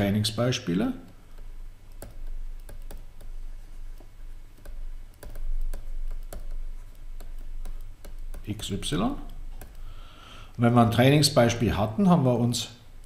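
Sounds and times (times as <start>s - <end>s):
low steady hum: 0.0s - 13.0s
stylus clicking on tablet screen: 1.0s - 9.9s.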